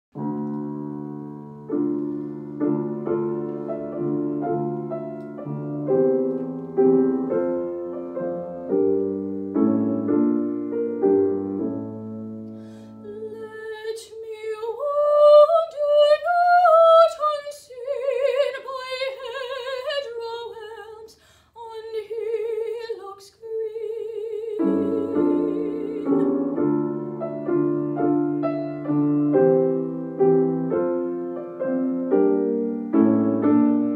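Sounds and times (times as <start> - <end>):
grand piano chords: 0.1 - 13.8, 24.4 - 33.9
woman singing operatically: 13.0 - 26.6.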